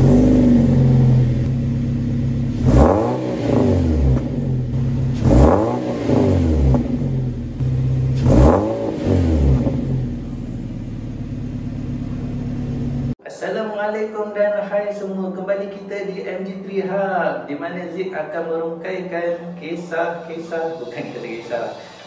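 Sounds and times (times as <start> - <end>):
car engine idling and revving: 0.0 - 13.2.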